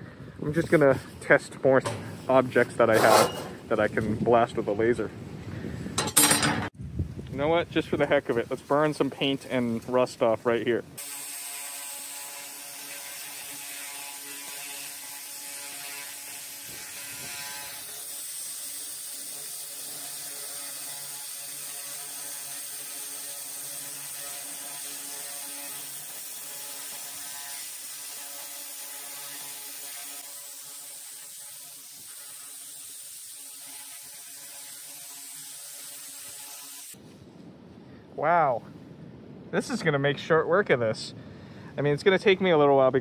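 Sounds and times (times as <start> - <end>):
laser cleaner buzzing and hissing: 11.0 - 37.0.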